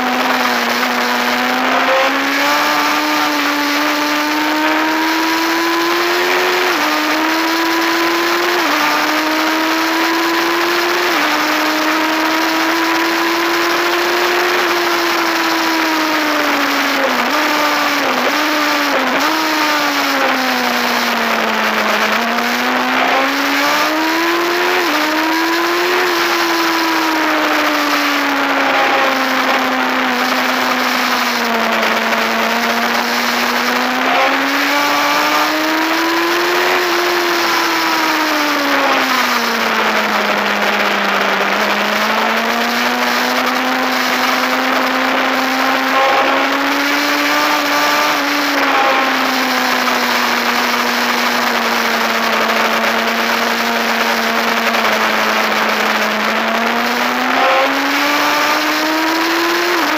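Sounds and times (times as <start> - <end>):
motorcycle engine running hard: 0.0 - 59.9.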